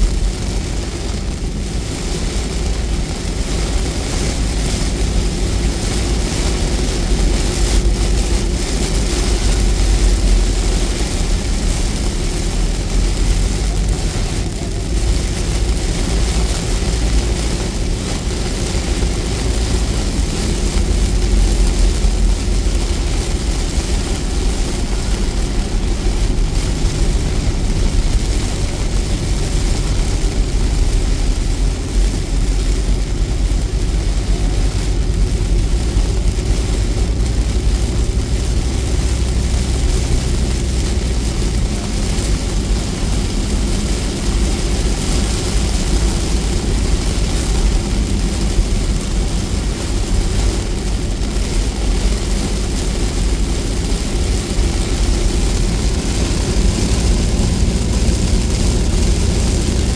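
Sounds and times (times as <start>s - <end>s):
car road and engine rumble: 0.0s - 59.9s
heavy rain on windshield: 0.0s - 59.9s.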